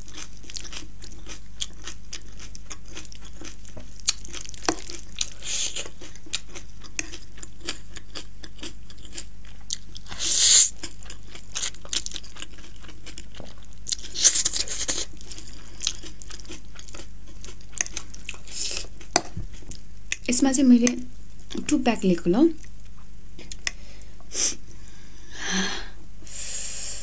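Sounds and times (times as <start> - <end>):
wet chewing and smacking: 0.0 - 20.3.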